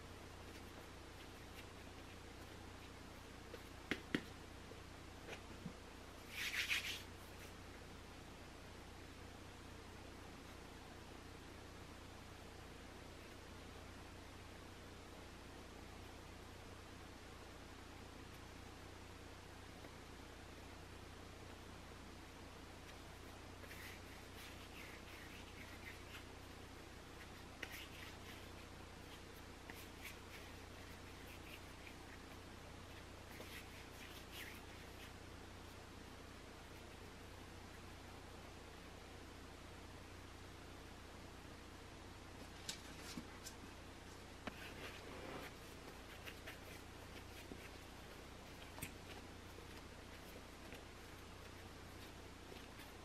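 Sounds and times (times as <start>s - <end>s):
hands rolling dough: 0.0s - 4.6s, 22.7s - 35.9s, 42.4s - 53.0s
steady low hum: 0.0s - 53.0s
soft taps of dough handling: 2.4s - 4.4s.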